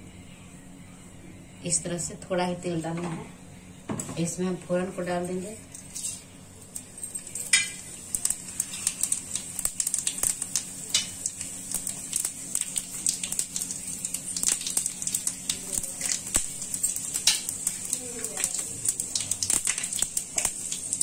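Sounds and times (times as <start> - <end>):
seeds sizzling in hot oil: 5.8 - 21.0.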